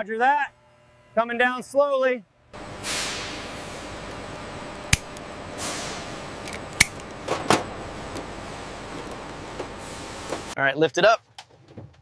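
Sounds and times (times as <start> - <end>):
wire cutters snipping: 4.9 - 5.3, 6.4 - 7.2.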